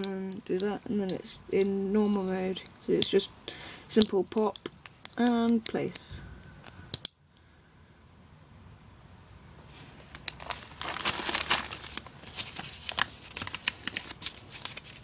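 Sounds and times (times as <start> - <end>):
packaging crinkling: 10.0 - 15.0.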